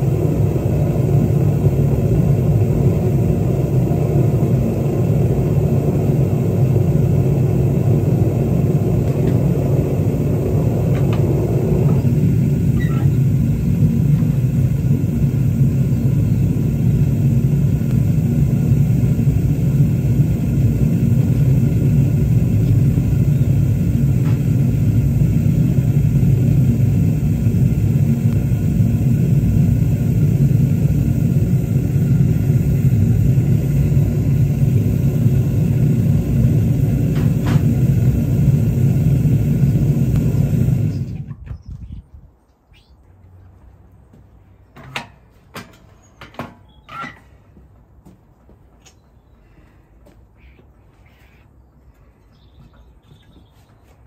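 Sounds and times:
gas burner rumbling: 0.0 - 41.9.

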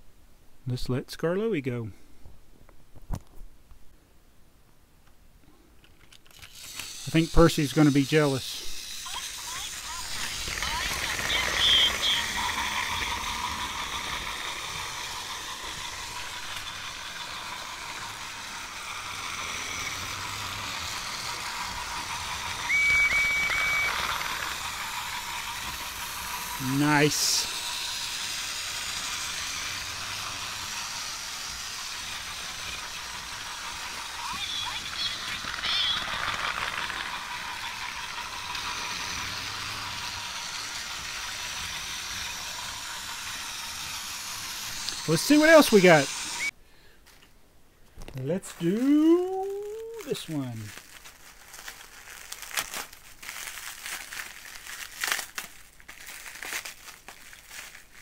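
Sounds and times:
wheels rattling on plastic track: 5.8 - 46.5, 48.5 - 58.0
toy train motor whir: 5.8 - 46.6, 48.4 - 58.0
short high rising tones: 9.7 - 36.2, 36.8 - 46.5.

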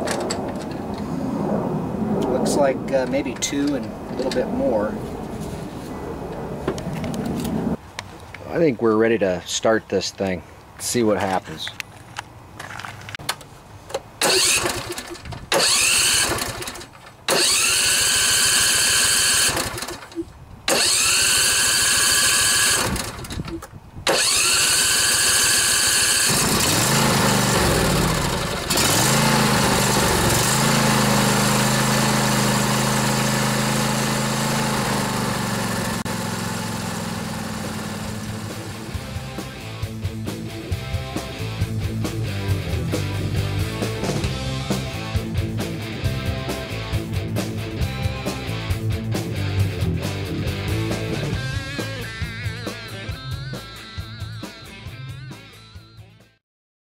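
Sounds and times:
electric starter cranking: 14.2 - 39.1
mower engine idling: 14.2 - 39.8.

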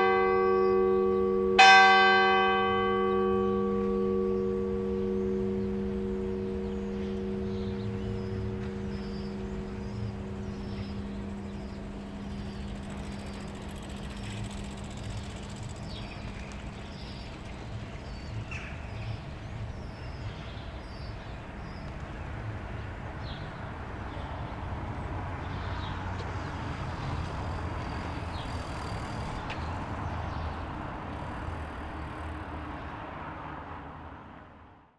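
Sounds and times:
church bell hum: 0.0 - 21.8, 23.2 - 32.7
road traffic: 0.0 - 34.9
bird chirping: 2.7 - 22.0.

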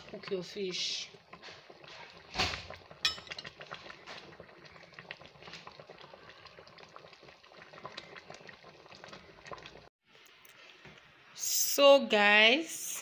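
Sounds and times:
soup bubbling in a pot: 0.0 - 11.3
metallic clink on pot: 3.0 - 3.6.

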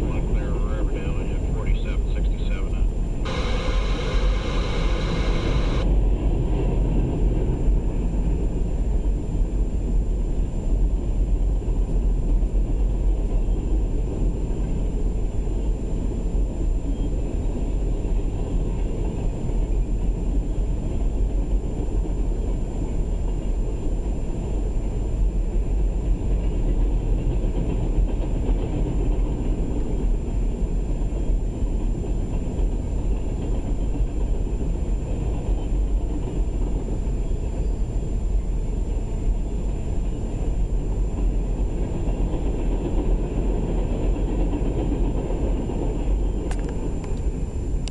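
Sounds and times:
train wheels on rails: 3.3 - 5.9, 20.5 - 47.4.

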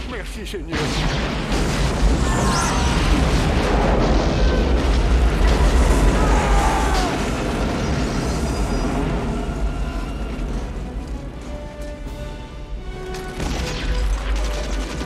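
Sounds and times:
explosions rumbling: 0.0 - 11.7
music: 9.1 - 15.0.

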